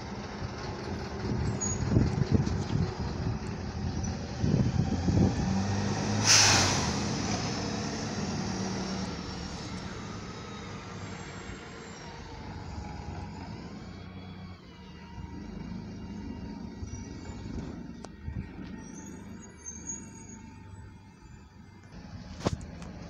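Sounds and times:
bus engine humming: 0:00.0 - 0:23.0
air brake hiss: 0:06.1 - 0:07.2.

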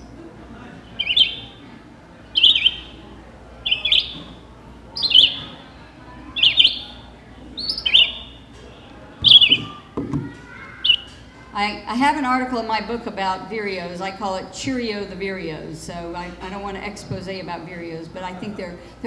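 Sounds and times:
recorded birdsong from speaker: 0:00.8 - 0:04.4, 0:05.0 - 0:09.8, 0:10.7 - 0:11.2.

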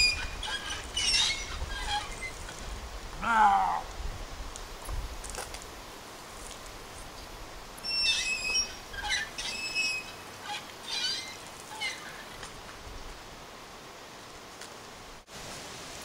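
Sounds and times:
hand water pump squeaking: 0:00.0 - 0:02.6, 0:07.8 - 0:12.5.

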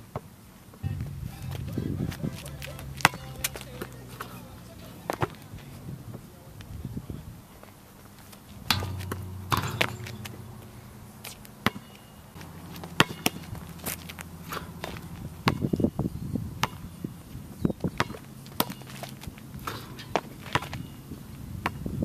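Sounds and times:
low steady hum: 0:00.7 - 0:18.9
sneaker footsteps: 0:01.0 - 0:06.7, 0:07.6 - 0:15.7
basketball bouncing on asphalt: 0:01.5 - 0:04.4, 0:05.0 - 0:06.2, 0:08.7 - 0:22.0
ball knocking against hoop: 0:08.7 - 0:13.7.

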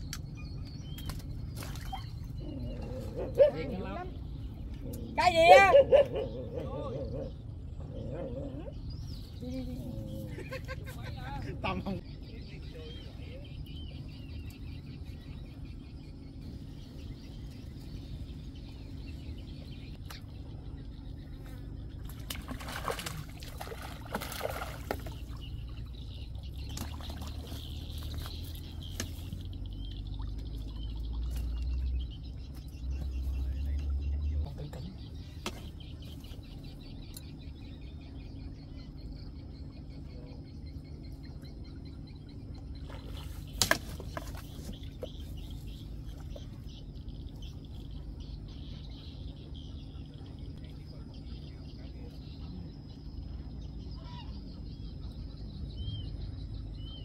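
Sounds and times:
faint bird chirps: 0:00.0 - 0:57.0
splashing in water: 0:22.0 - 0:25.8, 0:26.6 - 0:29.5.

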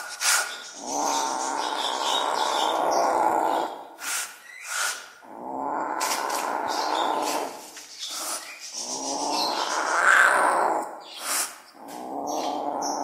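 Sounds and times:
cat hissing spits: 0:00.0 - 0:00.6, 0:04.0 - 0:05.2, 0:11.2 - 0:11.6
wild cat growling: 0:00.7 - 0:03.9, 0:05.2 - 0:11.0, 0:11.7 - 0:13.0.

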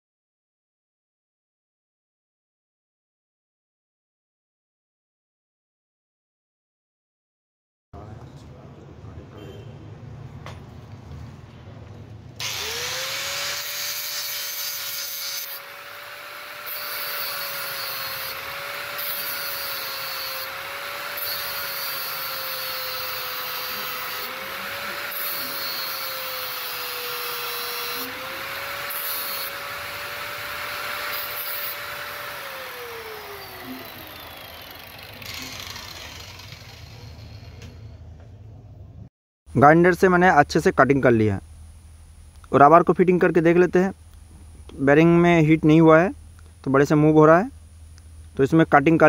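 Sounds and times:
angle grinder cutting metal: 0:12.4 - 0:37.8.

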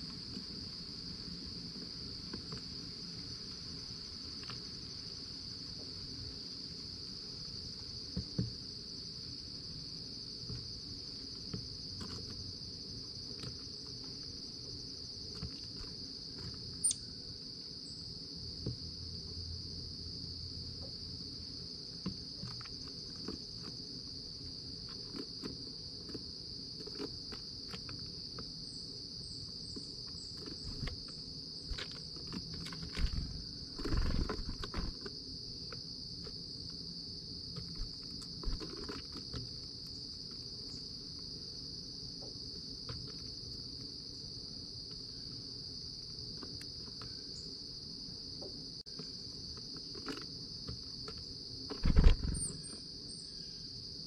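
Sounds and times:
insect chorus trilling: 0:00.0 - 0:54.0
bird pecking on wooden tray: 0:37.6 - 0:39.9.

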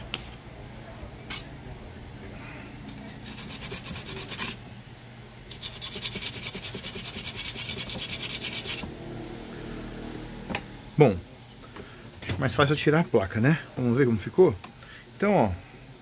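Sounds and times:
brush scrubbing circuit board: 0:03.1 - 0:04.6, 0:05.5 - 0:08.8.

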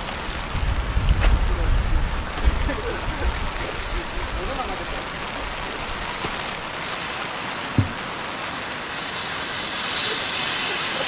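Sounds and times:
heavy rain: 0:00.0 - 0:11.0
river rushing: 0:01.7 - 0:11.0
short low thump: 0:07.8 - 0:08.1.

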